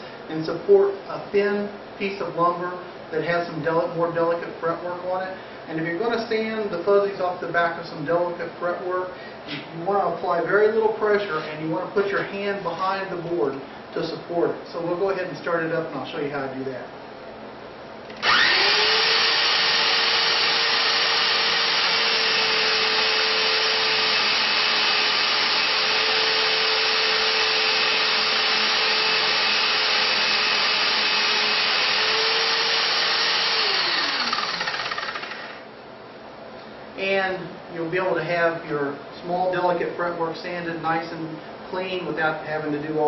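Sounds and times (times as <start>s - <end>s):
electric drill whirring: 18.1s - 35.7s.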